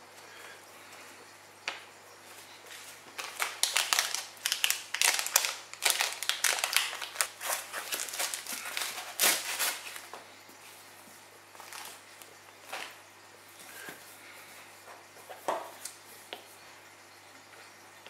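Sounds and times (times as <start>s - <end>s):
foam wrap crinkling: 2.8s - 10.1s, 11.6s - 13.0s.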